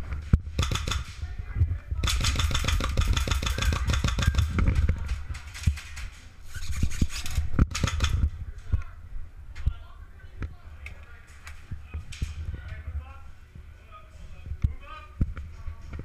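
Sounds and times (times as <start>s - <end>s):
muffled airsoft rifle firing: 0.5s - 1.3s, 2.0s - 6.0s, 7.6s - 8.4s.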